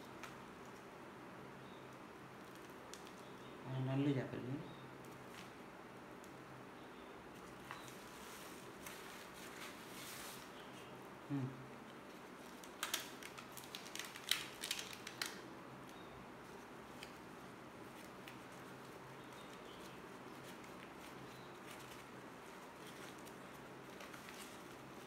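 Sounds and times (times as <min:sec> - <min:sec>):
newspaper crinkling: 0:07.3 - 0:10.7, 0:12.1 - 0:25.0.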